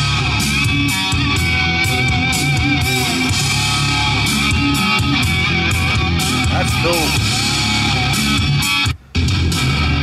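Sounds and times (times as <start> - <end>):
rock music from car speaker: 0.0 - 10.0.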